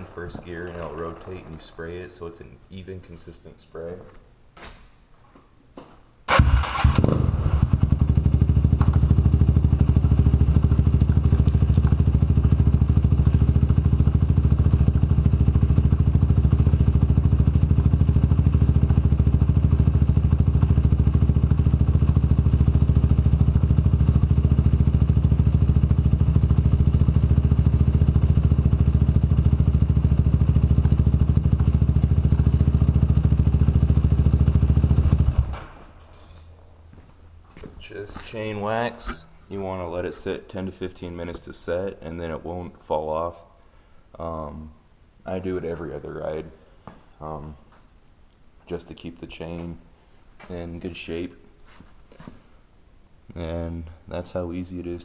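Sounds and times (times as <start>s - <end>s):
engine starting and idling: 6.3s - 9.3s.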